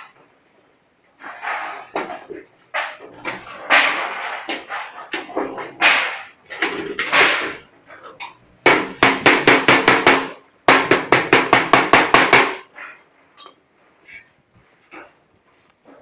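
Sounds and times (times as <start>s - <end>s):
hammer striking sheet metal: 2.8s - 6.4s, 8.7s - 12.7s.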